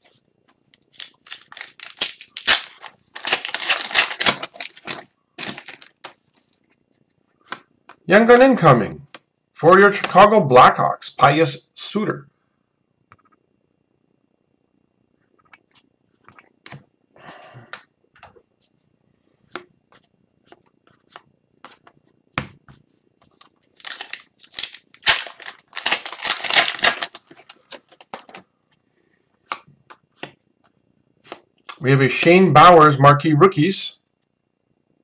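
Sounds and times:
rustling and crinkling: 0:00.0 - 0:07.6, 0:18.6 - 0:28.9
trading cards being flipped: 0:00.5 - 0:06.5, 0:23.2 - 0:28.4.

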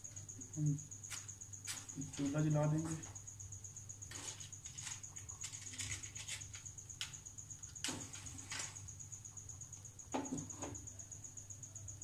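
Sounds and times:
faint high whine: 0:00.0 - 0:12.0.

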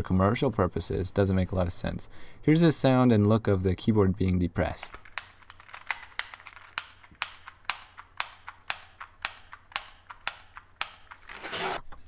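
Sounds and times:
fainter clicks: 0:04.9 - 0:11.4
keyboard keys clicking: 0:04.9 - 0:11.5.

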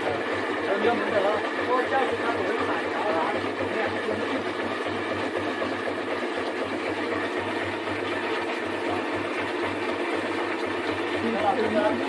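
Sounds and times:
pulping machine running: 0:00.0 - 0:12.0.

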